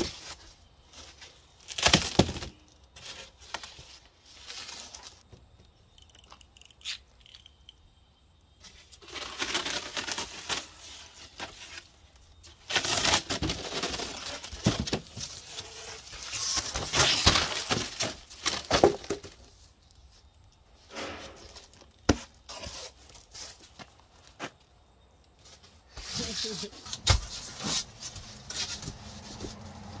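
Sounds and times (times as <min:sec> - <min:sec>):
foam board scraping and squeaking: 0:08.6 - 0:19.6, 0:20.9 - 0:24.5, 0:25.4 - 0:30.0.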